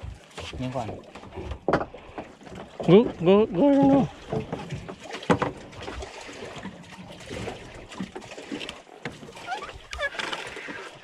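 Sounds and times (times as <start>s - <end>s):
water sloshing against boat: 0.0s - 11.0s
knocks on boat: 0.8s - 2.0s, 3.8s - 5.7s.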